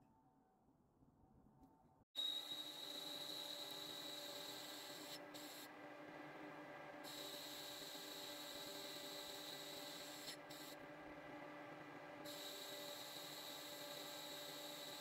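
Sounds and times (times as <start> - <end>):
metal lathe whining: 2.2 - 5.7, 7.1 - 10.8, 12.3 - 15.0.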